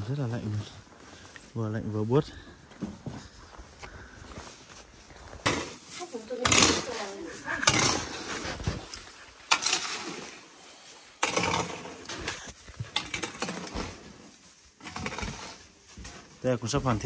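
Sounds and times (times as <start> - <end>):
hand tools scraping cement: 5.5 - 10.5, 14.8 - 16.3.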